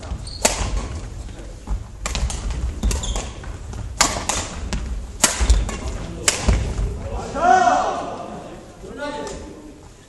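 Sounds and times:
footsteps on wooden gym floor: 0.0 - 6.0
rackets striking shuttlecock: 0.3 - 1.0, 2.0 - 6.8.

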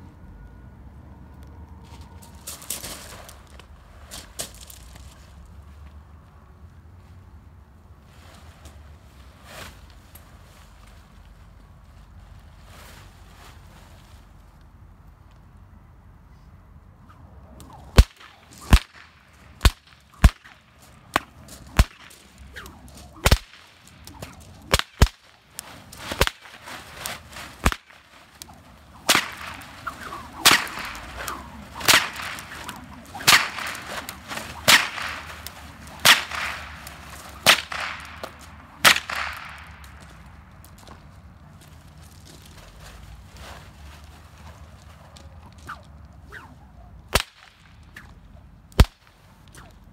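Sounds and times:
short swish: 17.1 - 39.6, 45.4 - 48.3, 49.5 - 49.8
loud sharp cracks: 17.6 - 40.9, 47.1 - 49.8.

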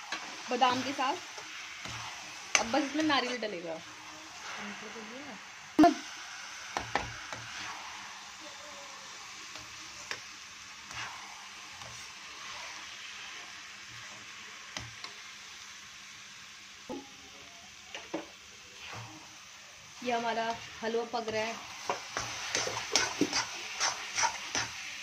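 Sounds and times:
spoon scraping a pan: 0.0 - 4.8, 6.7 - 8.0, 9.5 - 13.4, 18.8 - 19.3, 20.1 - 25.0
frying hiss: 0.0 - 25.0.

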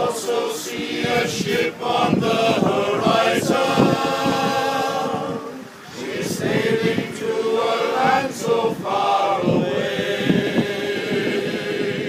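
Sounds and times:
male choir singing a cappella: 0.0 - 12.0.

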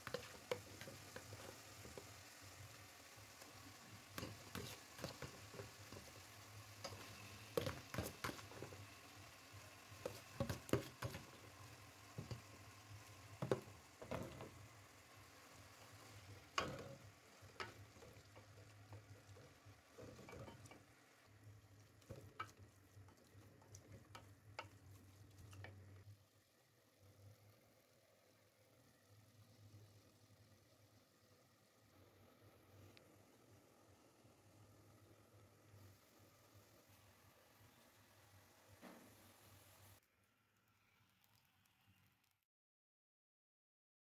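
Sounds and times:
spoon knocking and scraping pot: 0.0 - 2.2, 3.9 - 8.9, 9.9 - 12.6, 13.4 - 14.7, 15.9 - 20.9, 21.9 - 26.0
faint sizzle: 0.0 - 42.4.

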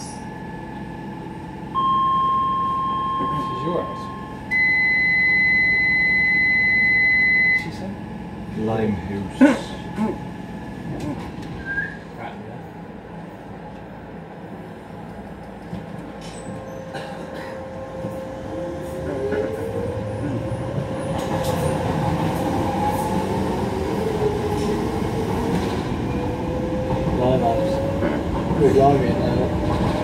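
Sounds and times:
train running noise: 7.6 - 30.0.

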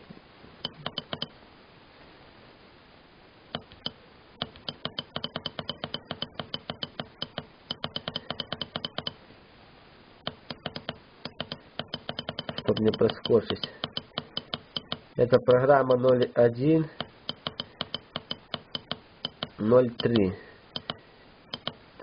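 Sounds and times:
keypad buttons clicking: 0.6 - 1.3, 3.6 - 9.2, 10.2 - 15.1, 17.0 - 21.8.

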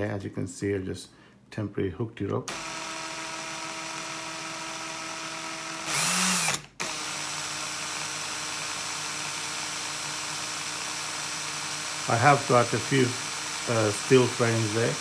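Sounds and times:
cordless drill motor running: 2.5 - 15.0.

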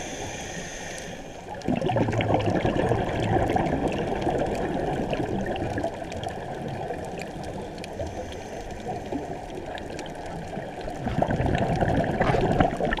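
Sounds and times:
muffled underwater rushing: 0.0 - 13.0
faint clicks: 5.7 - 11.0.

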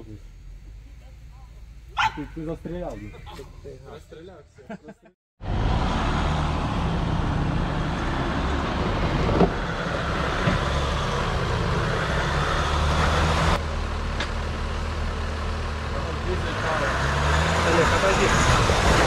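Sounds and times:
truck engine at low revs: 0.0 - 4.1, 5.0 - 19.0.

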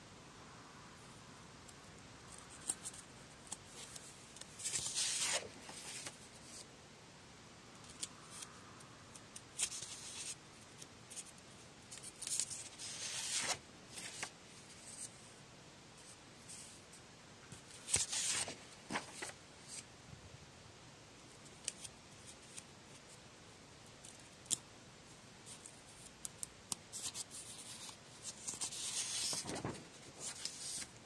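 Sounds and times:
paper rustling: 2.6 - 6.6, 11.9 - 15.1, 17.6 - 19.8, 26.9 - 30.9.

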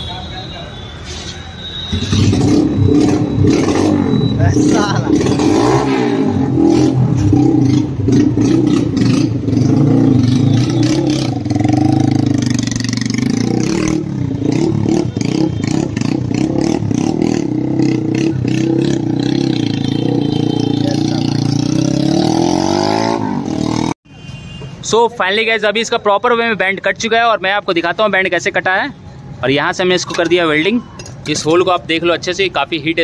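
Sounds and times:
motorcycle engine revving rough: 1.9 - 24.0.

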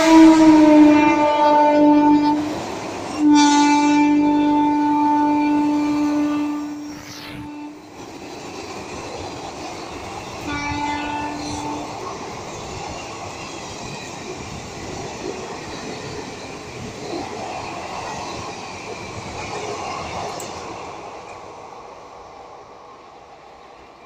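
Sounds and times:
train horn: 0.0 - 7.9, 10.4 - 12.1
train rumbling past with wheel clatter: 0.0 - 24.0.

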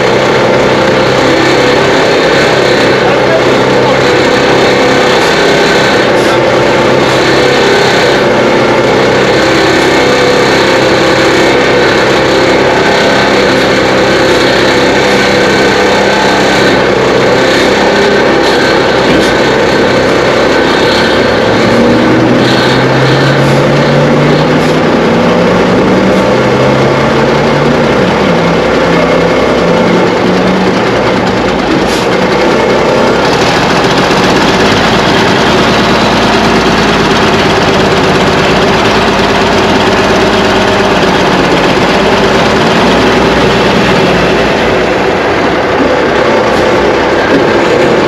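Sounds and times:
heavy diesel truck engine: 0.0 - 48.0.

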